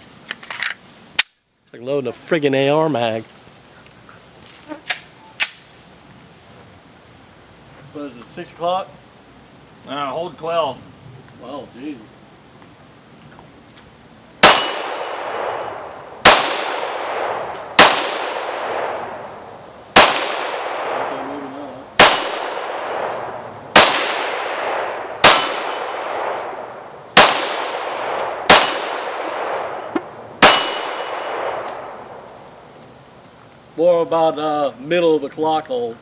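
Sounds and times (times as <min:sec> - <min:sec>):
steel target ringing: 0:14.4 - 0:15.6, 0:22.0 - 0:22.8, 0:25.2 - 0:25.9, 0:28.5 - 0:29.2, 0:30.4 - 0:31.3
pistol shots: 0:14.4 - 0:19.3, 0:19.9 - 0:21.4, 0:22.0 - 0:32.2.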